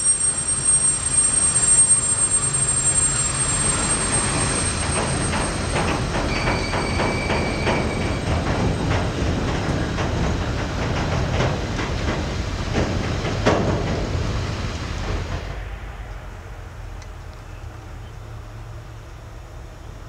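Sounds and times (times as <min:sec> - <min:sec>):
high wheel squeal: 0:00.0 - 0:08.9
freight wagons rumbling past: 0:00.0 - 0:20.0
wheels clanking over rail joints: 0:00.1 - 0:16.0.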